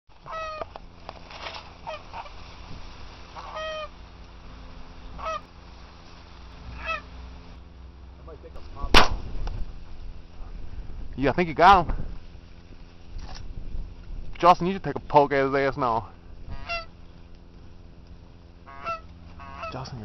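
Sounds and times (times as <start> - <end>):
geese honking: 0.1 - 0.8, 1.8 - 2.6, 3.2 - 7.6, 16.4 - 17.0, 18.6 - 20.0
shotgun blast: 8.9 - 9.5.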